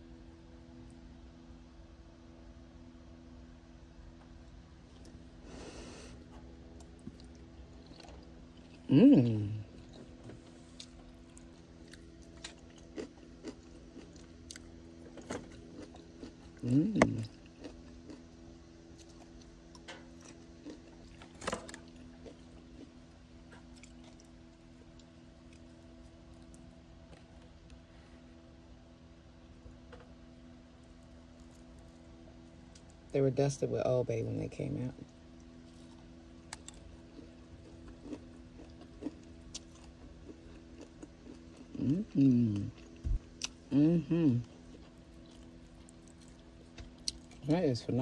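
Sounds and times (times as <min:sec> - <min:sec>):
steady low hum: 0:00.0 - 0:48.0
quiet chewing: 0:04.9 - 0:28.2, 0:30.7 - 0:33.1, 0:35.0 - 0:43.8, 0:44.4 - 0:47.5.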